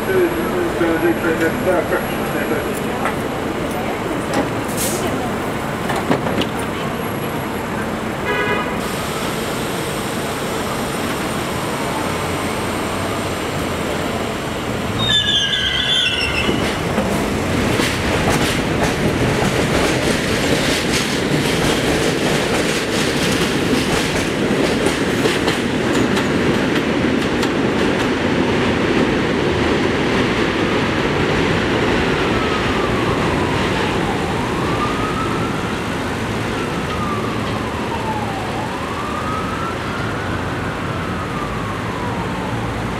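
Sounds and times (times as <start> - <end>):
train rumbling and clattering: 0.0 - 8.2, 8.8 - 40.1
train wheels squealing: 15.0 - 16.8
faint siren wailing: 32.2 - 42.9.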